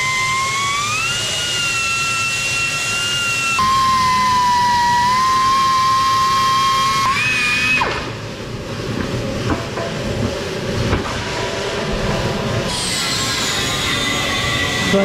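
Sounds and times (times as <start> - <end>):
air grinder whining: 0.0 - 7.9, 12.7 - 15.0
shop noise: 3.4 - 15.0.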